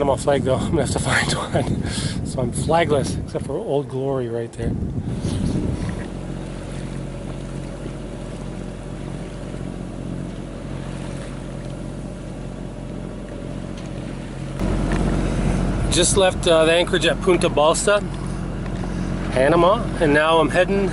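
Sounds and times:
wind noise: 0.0 - 8.1
boat diesel engine humming: 0.0 - 20.9
water wash: 0.0 - 20.9.

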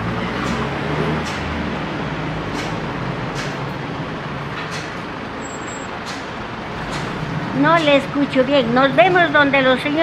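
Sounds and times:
bus passing: 0.0 - 10.0
street traffic: 0.0 - 10.0.

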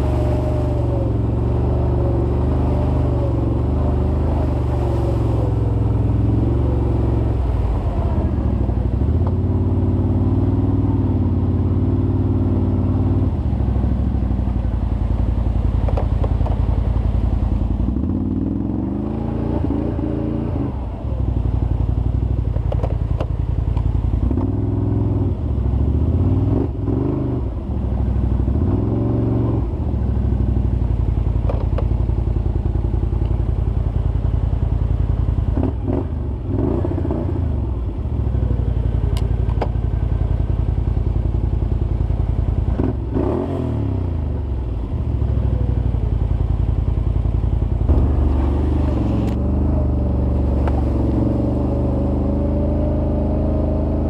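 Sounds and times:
atv engine revving: 0.0 - 13.8, 17.8 - 21.7, 24.2 - 30.7, 35.4 - 54.0.

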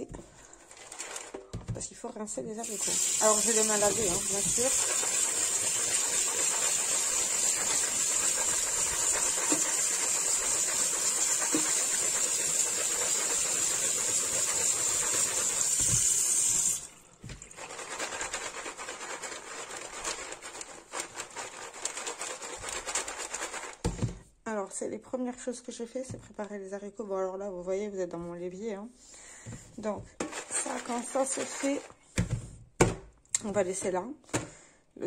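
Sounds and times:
tap water running onto beans: 2.6 - 18.7.

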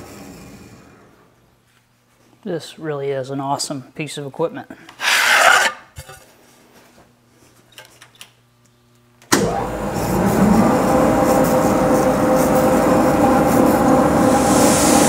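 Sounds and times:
brief scrape: 5.0 - 6.2
band saw running: 9.4 - 15.0.

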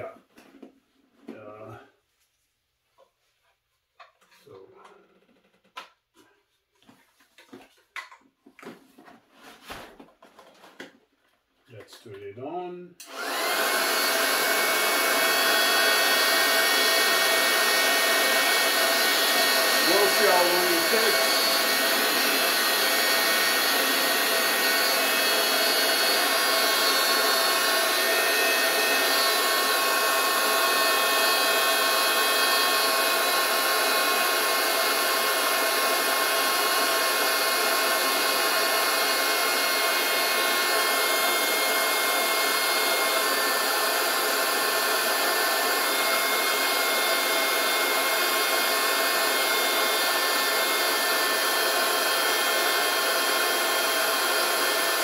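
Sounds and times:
electric air pump running: 13.0 - 55.0.

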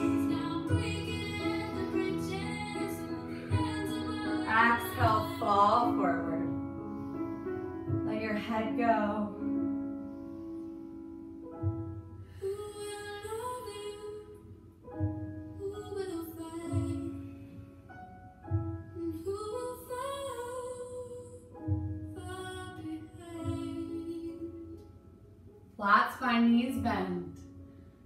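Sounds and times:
woman singing: 0.0 - 6.6, 12.4 - 14.6, 15.6 - 17.4, 19.0 - 24.8
soft low beats: 0.0 - 10.0, 11.3 - 12.4
held keyboard chords: 0.0 - 14.0.

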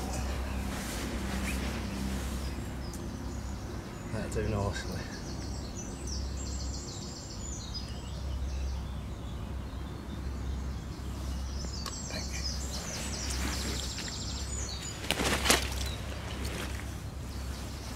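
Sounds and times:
steady low rumble: 0.0 - 7.7
songbird singing: 0.0 - 17.9
handling rustle: 12.8 - 17.9.

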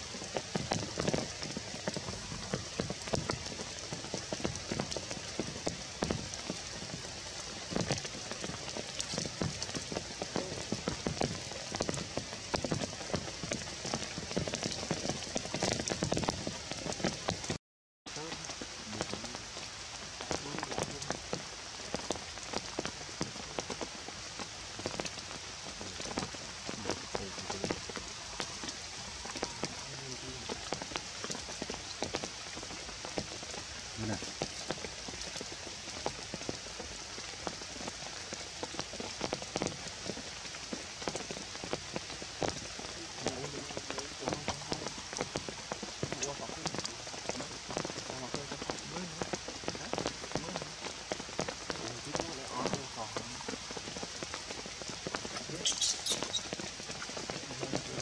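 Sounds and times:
rain pattering on leaves: 0.0 - 58.0.

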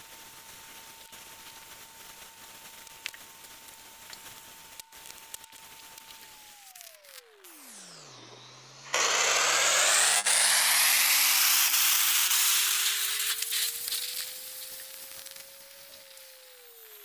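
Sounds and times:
rocket engines roaring: 6.7 - 14.8.

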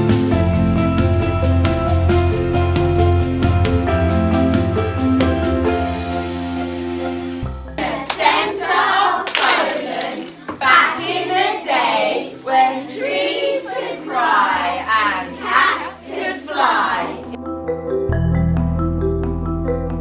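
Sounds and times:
hands clapping: 7.8 - 11.5
children chanting in unison: 7.8 - 17.4.

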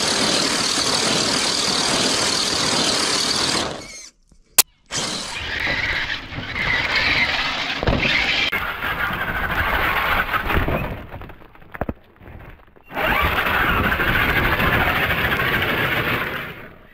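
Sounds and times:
toy truck motor whining: 0.0 - 4.2, 4.9 - 10.8, 12.8 - 16.7
tyres crunching through snow: 5.1 - 16.7.

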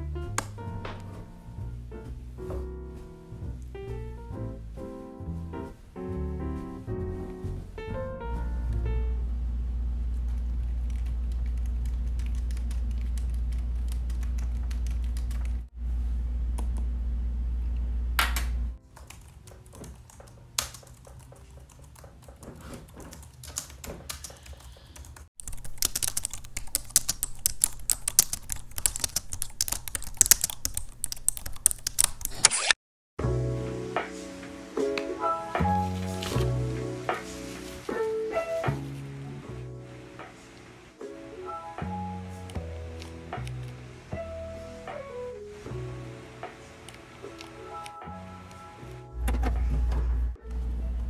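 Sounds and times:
low hum: 6.2 - 18.8
keyboard typing: 10.6 - 15.6, 18.9 - 32.8.

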